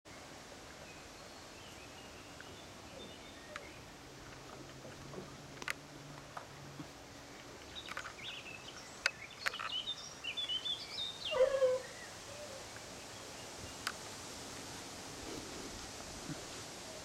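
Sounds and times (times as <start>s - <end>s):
sharp clicks: 9.0s - 9.8s.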